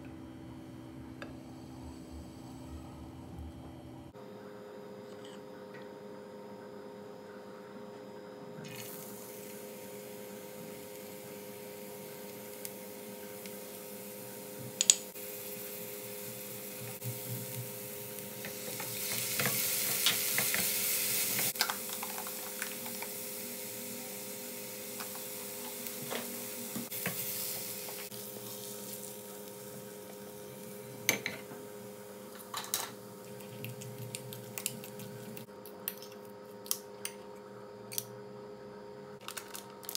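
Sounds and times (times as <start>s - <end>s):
vegetables sizzling in oil: 8.7s - 33.2s.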